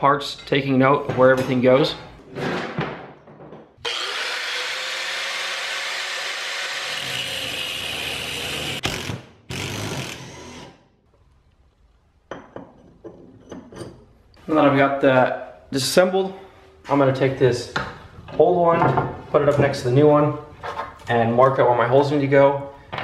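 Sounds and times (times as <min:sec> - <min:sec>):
angle grinder cutting metal: 0:03.8 - 0:10.8.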